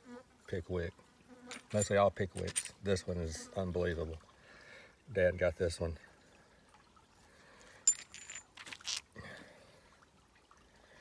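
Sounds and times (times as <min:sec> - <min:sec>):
stones clicking and clinking: 0:01.5 - 0:02.8, 0:07.8 - 0:09.2
rustles: 0:07.5 - 0:09.2.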